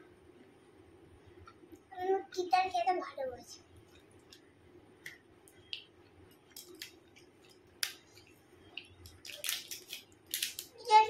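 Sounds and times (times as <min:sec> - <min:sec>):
wrapper crinkling: 0:08.9 - 0:11.0.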